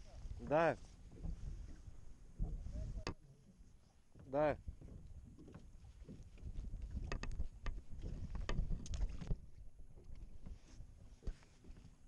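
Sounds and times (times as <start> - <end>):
fish handling clicks and knocks: 4.2 - 10.6.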